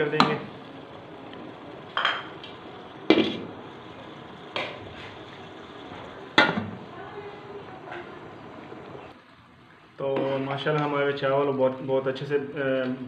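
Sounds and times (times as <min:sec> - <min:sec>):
cookware clanking: 0:01.8 - 0:03.5.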